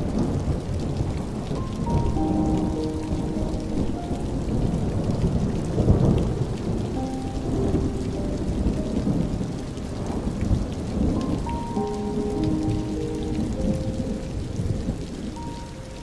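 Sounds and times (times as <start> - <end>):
steady rain: 0.0 - 16.0
thunder rumbling: 0.0 - 16.0
soft held musical notes: 1.5 - 5.0, 11.0 - 16.0.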